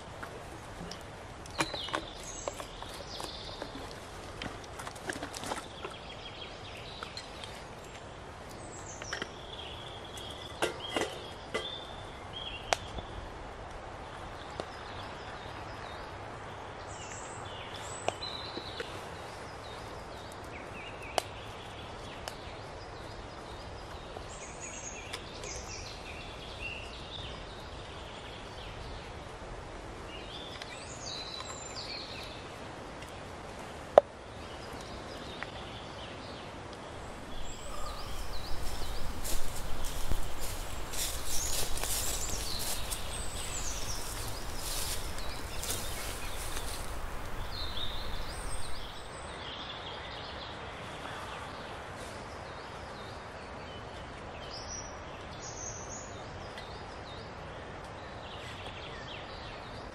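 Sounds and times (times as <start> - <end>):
birds singing: 0.9 - 4.0, 5.2 - 13.2, 34.4 - 51.8
twig stove crackling: 37.0 - 49.1.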